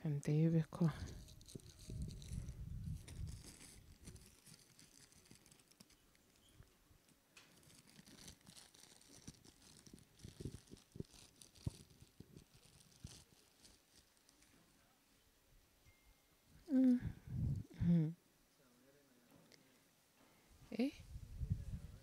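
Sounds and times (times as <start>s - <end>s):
paper wrapping crinkling: 1.0s - 6.6s, 7.4s - 14.6s.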